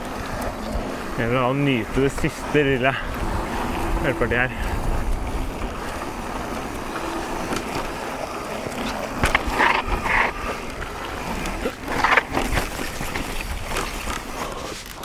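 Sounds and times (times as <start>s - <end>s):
bike tyres rolling over rough ground: 0.0s - 15.0s
bike knocks and rattles: 8.7s - 14.1s.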